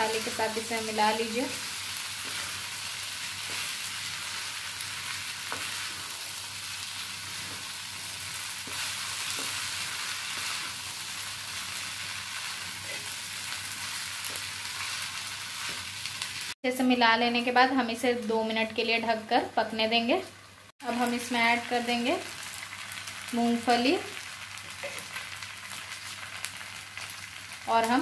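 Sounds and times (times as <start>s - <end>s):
food sizzling in a frying pan: 0.0s - 28.0s.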